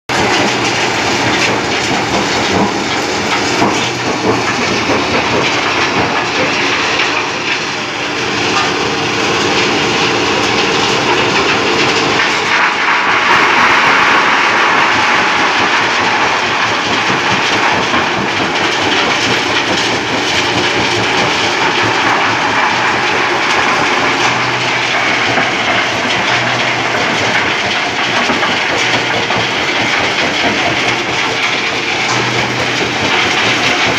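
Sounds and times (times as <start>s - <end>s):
stone crushers grinding: 0.1s - 8.7s, 10.8s - 33.9s
steady machine hum: 0.1s - 33.9s.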